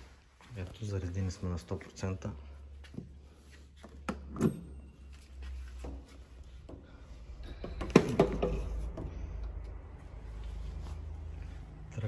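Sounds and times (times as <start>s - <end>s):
knock with cable rattling: 7.6s - 9.0s.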